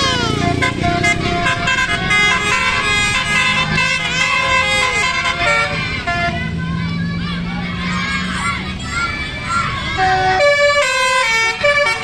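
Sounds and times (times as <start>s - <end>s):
bus horn playing melody: 0.0s - 6.8s, 9.9s - 12.0s.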